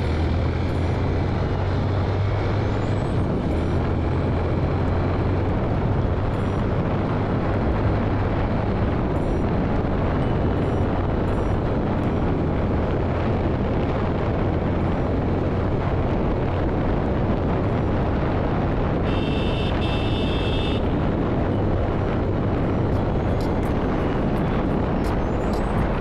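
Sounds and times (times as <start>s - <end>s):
motorcycle engine humming: 0.0s - 26.0s
wind buffeting microphone: 0.0s - 26.0s.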